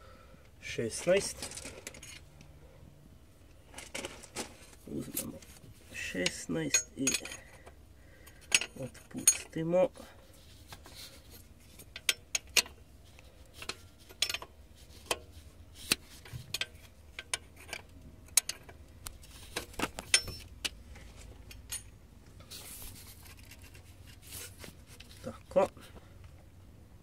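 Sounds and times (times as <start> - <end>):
wrench clinking on metal bolt: 6.2 - 7.6, 13.6 - 14.5, 20.0 - 20.5.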